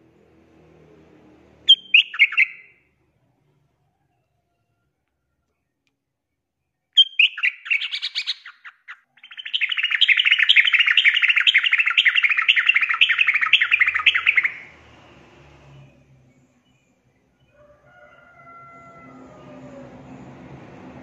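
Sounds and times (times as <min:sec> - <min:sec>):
bird chirps: 0:01.7 - 0:02.8, 0:06.9 - 0:14.8
bird rapid chattering: 0:07.0 - 0:14.6.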